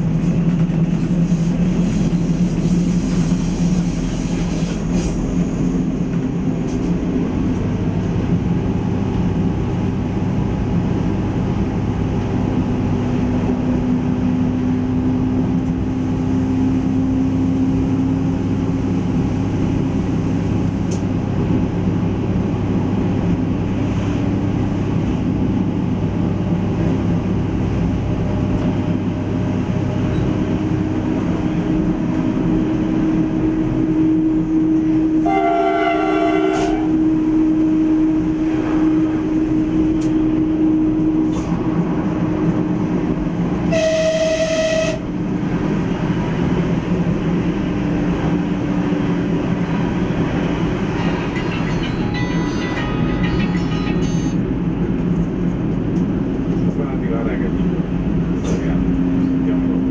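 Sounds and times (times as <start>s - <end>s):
railcar engine and rail noise: 0.0s - 59.9s
train horn blast: 35.2s - 37.1s, 43.6s - 45.1s.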